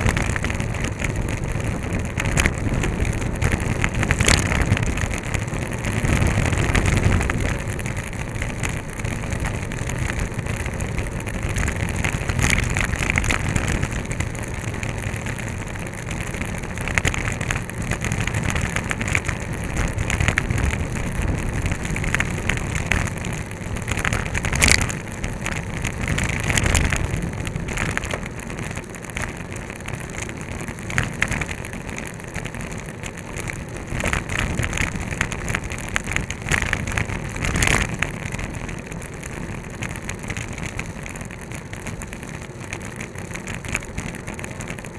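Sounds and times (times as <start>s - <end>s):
scattered crackles: 0.0s - 44.9s
tyre and road noise: 0.0s - 44.9s
wind rushing over microphone: 0.0s - 44.9s.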